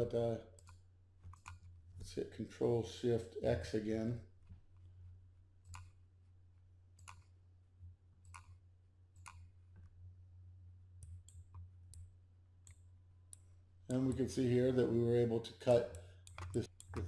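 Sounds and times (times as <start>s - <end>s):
steady low hum: 0.0s - 17.0s
mouse and keyboard clicks: 7.0s - 7.3s, 8.2s - 8.6s, 16.2s - 17.0s.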